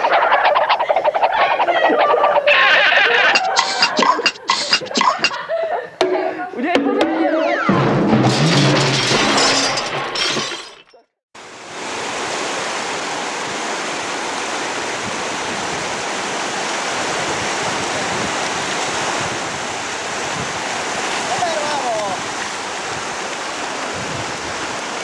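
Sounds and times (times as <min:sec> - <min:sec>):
loud clattering crash: 0:07.7 - 0:10.9
river water rushing through rapids: 0:11.4 - 0:25.0.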